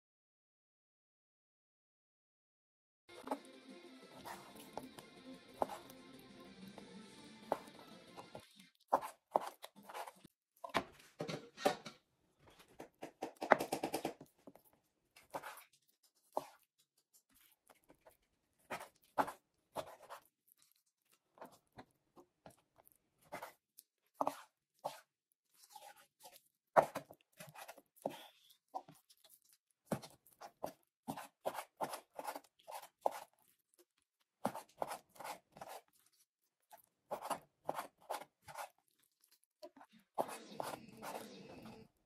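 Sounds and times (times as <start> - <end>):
knife chopping on wooden board: 7.5 - 10.9, 29.9 - 33.3, 34.4 - 35.8.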